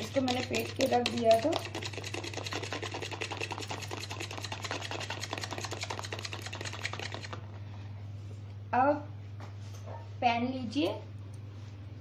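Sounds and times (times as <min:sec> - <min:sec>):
fork beating eggs in plastic bowl: 0:00.0 - 0:07.6.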